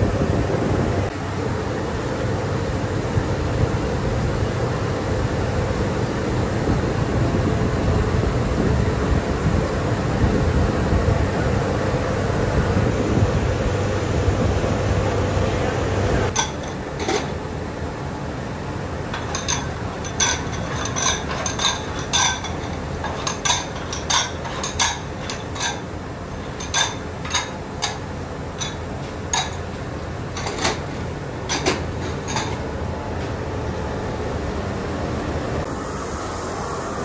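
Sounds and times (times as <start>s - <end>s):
low workshop rumble: 0.0s - 37.0s
ceramic bowls clinking: 16.3s - 17.3s, 19.2s - 25.8s, 26.4s - 28.0s.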